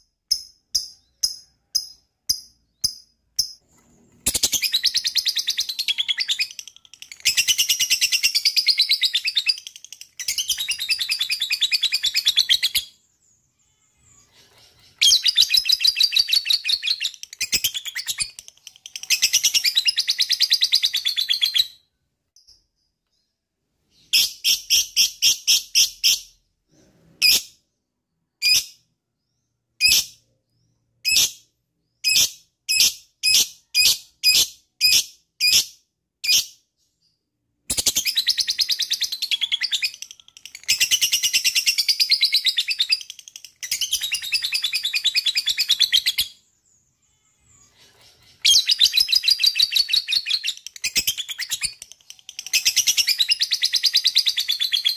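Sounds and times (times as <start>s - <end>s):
lovebird chirping and chattering: 0.0s - 21.8s, 22.4s - 26.5s, 28.4s - 54.9s.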